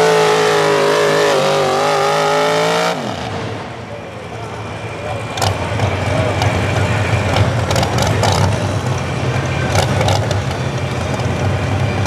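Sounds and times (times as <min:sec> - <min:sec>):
truck engine idling: 0:03.3 - 0:12.0.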